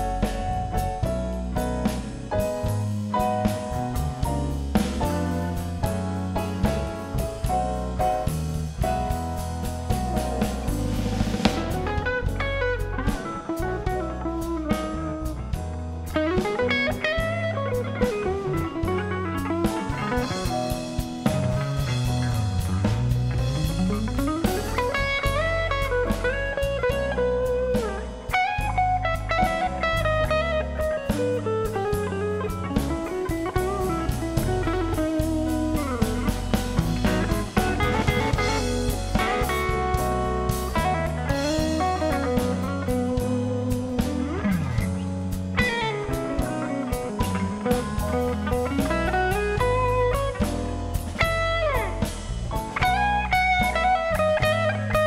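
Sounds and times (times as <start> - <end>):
live blues band: 0.0 - 55.0
electric guitar solo: 10.9 - 55.0.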